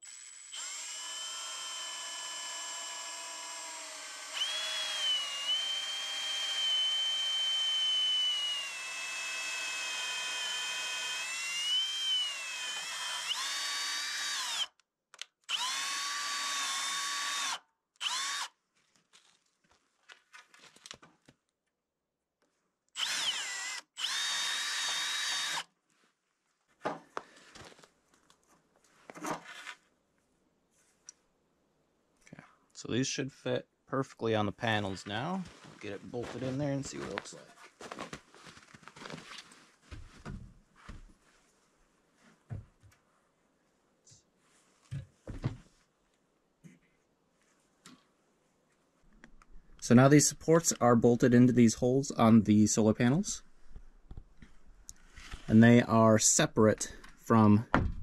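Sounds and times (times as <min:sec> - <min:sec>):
cordless drill whining: 0:00.0 - 0:14.8, 0:15.4 - 0:18.6, 0:23.0 - 0:25.7.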